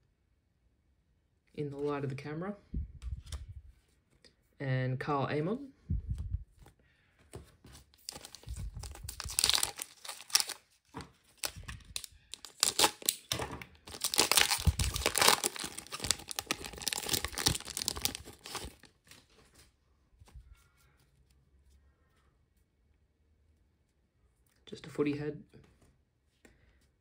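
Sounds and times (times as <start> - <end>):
card pack wrapper tearing and crinkling: 8.0 - 19.3.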